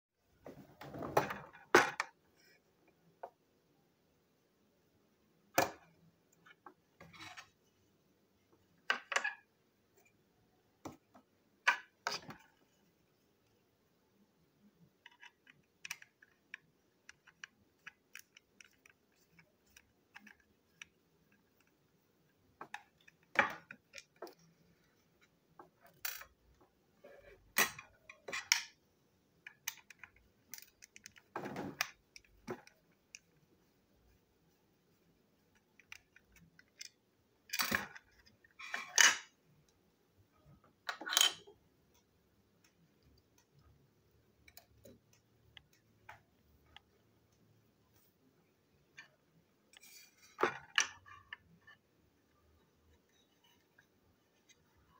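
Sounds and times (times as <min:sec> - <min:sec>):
plastic toy parts clicking: 0:15.0 - 0:21.8, 0:22.6 - 0:24.5, 0:29.4 - 0:33.3, 0:35.5 - 0:39.3.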